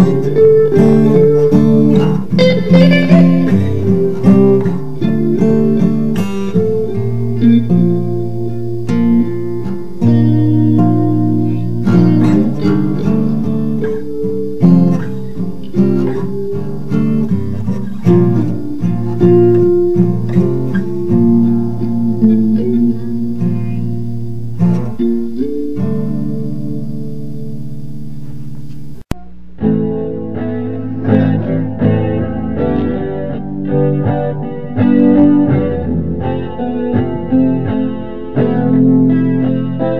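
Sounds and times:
blues guitar jam: 0.0s - 39.9s.

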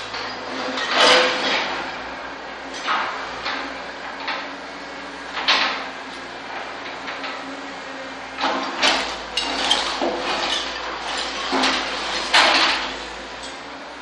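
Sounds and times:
excavator bucket scraping rubble: 0.0s - 2.0s, 8.4s - 13.6s
excavator engine running: 0.0s - 14.0s.

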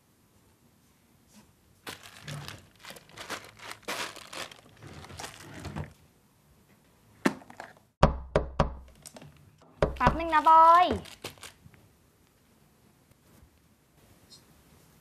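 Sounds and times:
rustling and crinkling: 1.2s - 6.1s, 8.9s - 13.8s.

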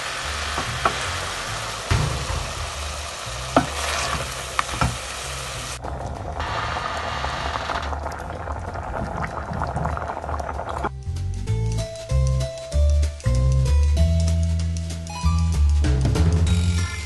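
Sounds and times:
food sizzling in a pan: 0.0s - 5.8s.

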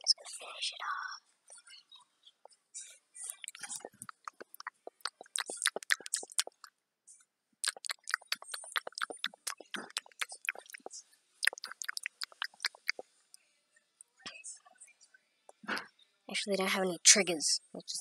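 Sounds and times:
crunching and chewing pretzels: 3.3s - 6.7s, 7.6s - 13.0s.

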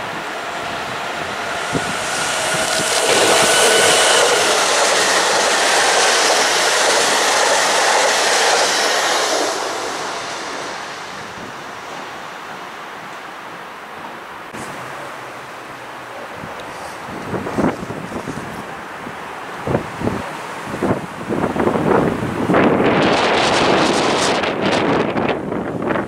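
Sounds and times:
thin steady whine: 0.0s - 13.7s
train wheels rushing on rail: 0.0s - 26.0s.

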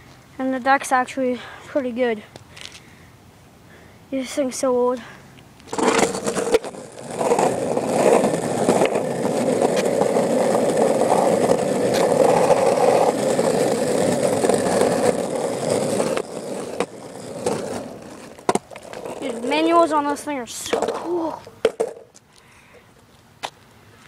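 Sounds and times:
skateboard rolling on asphalt: 5.6s - 22.3s.

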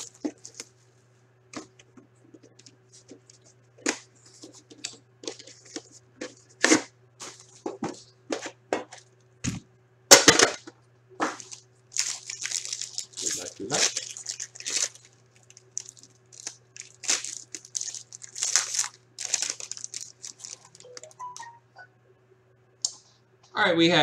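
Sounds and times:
packaging clicks and crackles: 0.0s - 0.7s, 11.4s - 21.5s
faint steady hum: 0.0s - 24.0s.

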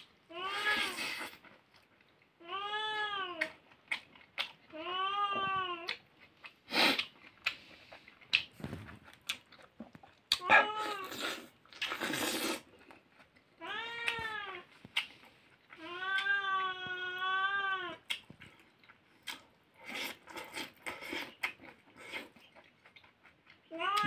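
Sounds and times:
eating noises: 0.0s - 2.4s, 3.4s - 4.9s, 5.7s - 24.0s
cat meowing: 10.4s - 11.2s, 23.7s - 24.0s.

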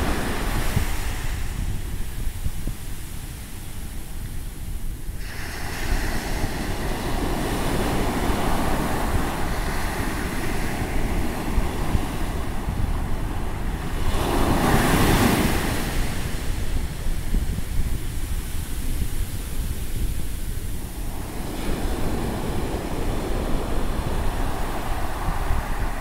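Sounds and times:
surf washing up sand beach: 0.0s - 26.0s
wind buffeting microphone: 0.0s - 26.0s.

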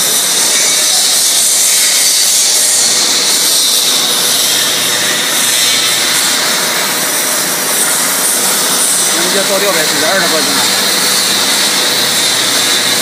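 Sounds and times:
machine high hiss: 0.0s - 13.0s.

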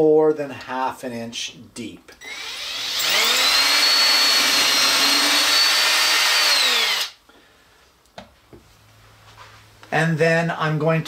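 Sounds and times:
cordless drill whining: 2.2s - 7.2s.

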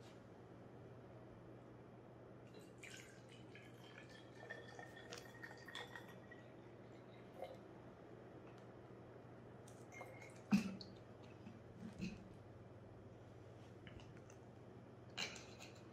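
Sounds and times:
water trickling into bottle: 2.6s - 6.4s.

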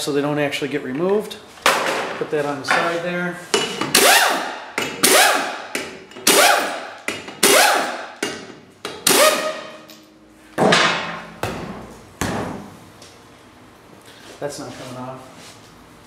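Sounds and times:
impact wrench whirring: 3.8s - 9.9s.

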